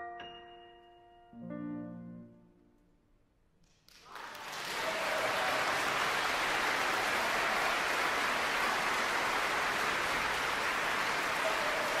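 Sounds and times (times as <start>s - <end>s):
large audience applauding: 3.9s - 12.0s.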